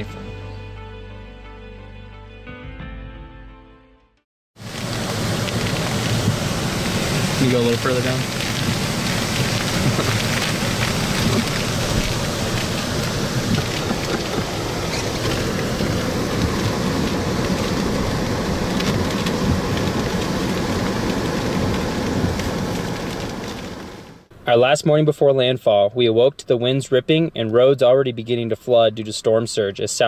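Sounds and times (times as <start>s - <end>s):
heavy rain on a vehicle: 4.6s - 24.2s.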